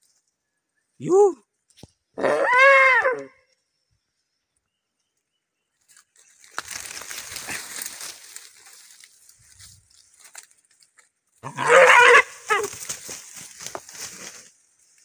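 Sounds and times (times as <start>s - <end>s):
deer crying: 2.2s - 3.4s, 11.4s - 12.8s
rustling through undergrowth: 5.7s - 15.0s.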